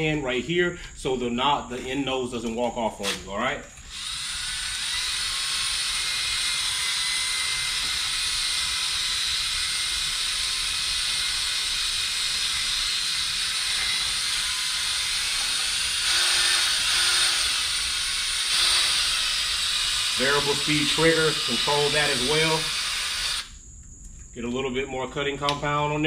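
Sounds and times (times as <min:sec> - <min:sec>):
drill motor whine: 0:03.0 - 0:23.6.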